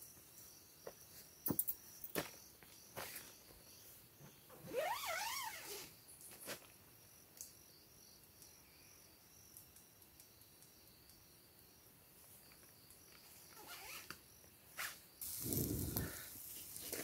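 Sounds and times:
crickets trilling: 0:00.0 - 0:17.0
tent zipper pulled: 0:04.6 - 0:05.9, 0:13.6 - 0:14.2, 0:14.8 - 0:16.2.

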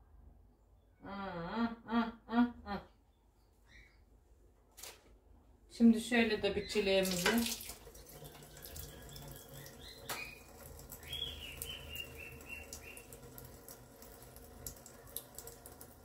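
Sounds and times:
small bird chirping: 0:03.4 - 0:04.1, 0:08.2 - 0:13.2.

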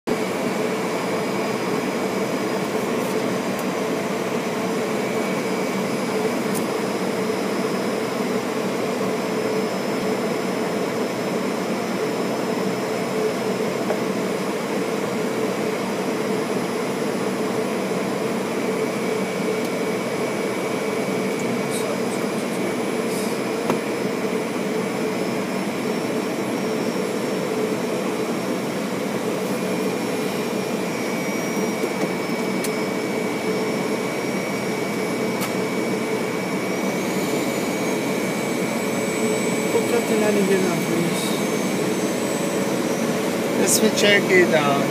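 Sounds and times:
steady whining tones: 0:18.6 - 0:44.9
airliner cockpit airflow hiss: 0:21.7 - 0:23.6.

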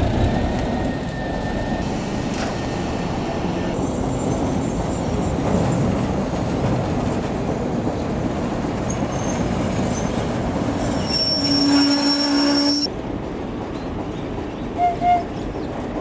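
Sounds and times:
loud steady squeal: 0:00.0 - 0:04.3, 0:10.8 - 0:12.9
diesel locomotive hauling train: 0:00.0 - 0:16.0.

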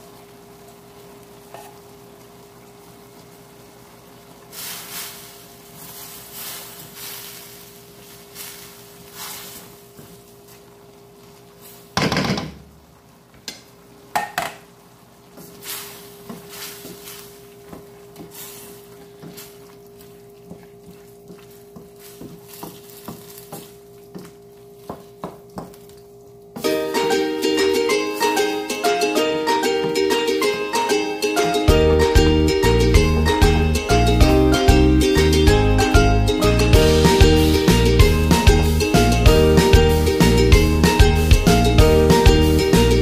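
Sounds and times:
sizzling: 0:00.0 - 0:43.0
spatula scraping a wok: 0:04.6 - 0:09.9, 0:15.4 - 0:17.5, 0:18.2 - 0:23.8.

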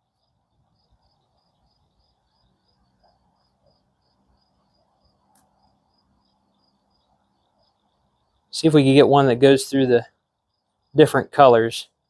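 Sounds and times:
cricket chirping faintly: 0:00.0 - 0:12.0
faint click: 0:05.3 - 0:05.6.

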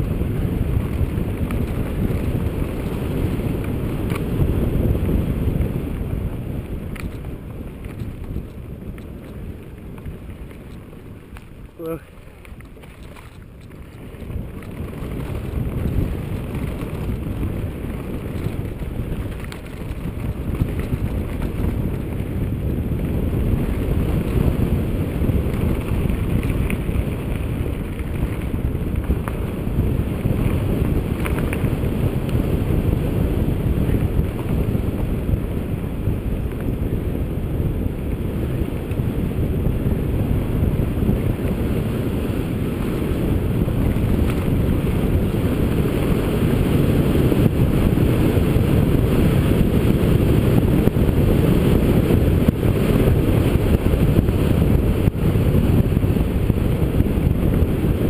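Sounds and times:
bike tyres rumbling on dirt: 0:00.0 - 0:58.0
wind buffeting microphone: 0:00.0 - 0:58.0
faint rattle ticks: 0:06.9 - 0:17.2.

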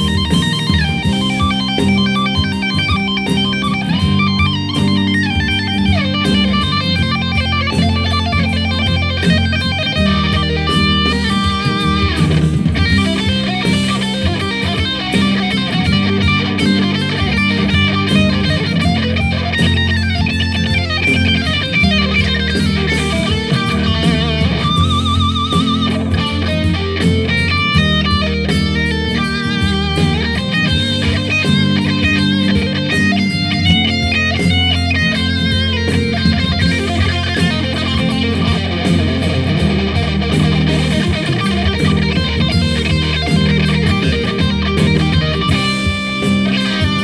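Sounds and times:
backing track low notes: 0:00.0 - 0:47.0
electric guitar lead: 0:00.0 - 0:47.0.

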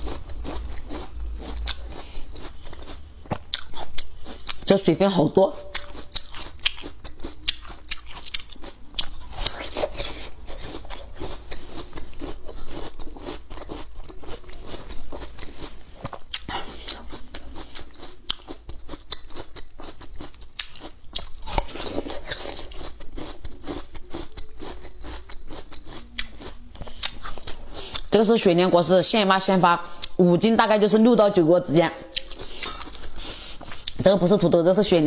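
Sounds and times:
person chewing crisp root: 0:00.0 - 0:28.5, 0:29.8 - 0:30.2, 0:32.0 - 0:34.0.

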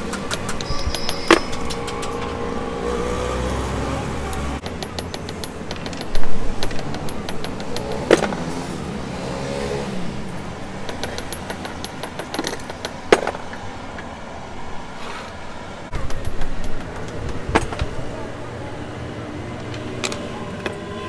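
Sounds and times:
road traffic noise: 0:00.0 - 0:21.0
metal knocks and clinks: 0:00.1 - 0:02.4, 0:04.2 - 0:08.7, 0:10.3 - 0:13.7, 0:15.9 - 0:18.1.

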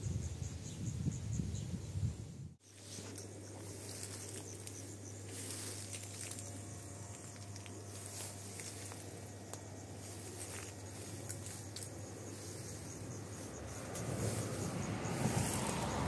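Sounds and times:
faint ticks and rustles: 0:02.6 - 0:15.8
low steady hum: 0:02.7 - 0:14.9.

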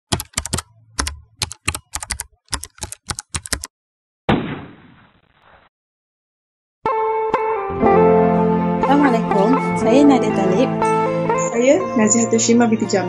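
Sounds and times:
keyboard key clacks: 0:00.1 - 0:03.7.

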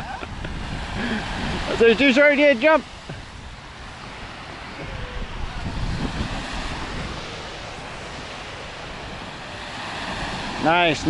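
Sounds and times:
small waves washing on shore: 0:00.0 - 0:11.0
wind rumbling on microphone: 0:00.0 - 0:11.0.

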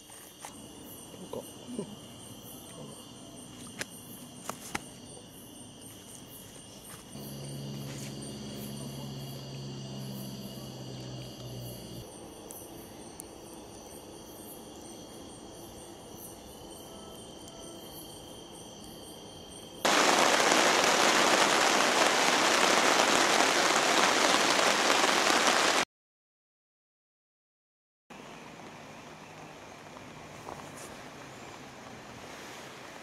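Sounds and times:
crickets chirping: 0:00.0 - 0:25.8, 0:28.1 - 0:33.0
campfire crackling: 0:19.8 - 0:25.8.

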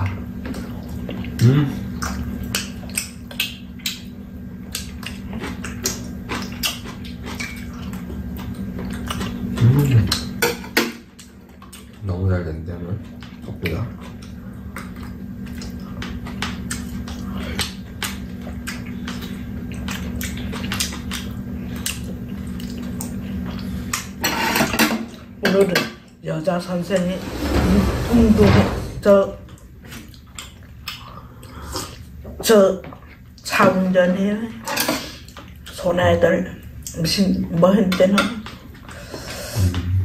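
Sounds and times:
chewing and mouth noises: 0:00.0 - 0:10.4, 0:11.0 - 0:24.2, 0:29.4 - 0:33.6, 0:34.6 - 0:37.6
low steady hum: 0:00.0 - 0:40.0.

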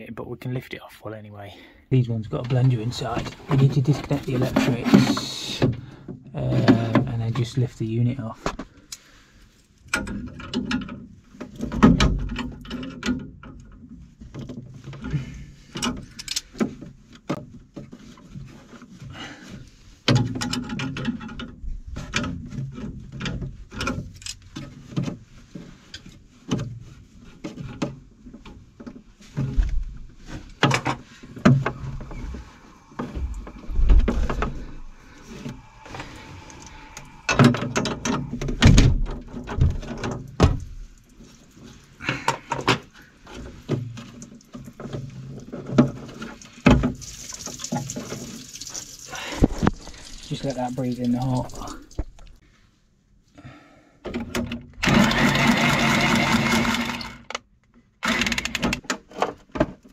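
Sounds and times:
metal and plastic clicks and knocks: 0:09.9 - 0:15.1, 0:20.1 - 0:25.2, 0:37.3 - 0:40.8, 0:56.5 - 0:59.9
heavy thumps: 0:29.4 - 0:40.8.

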